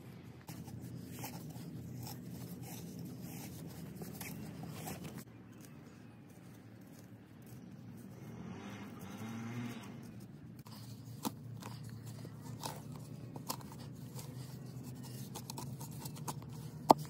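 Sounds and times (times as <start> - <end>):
hand tool scraping soil: 0.4 - 6.1.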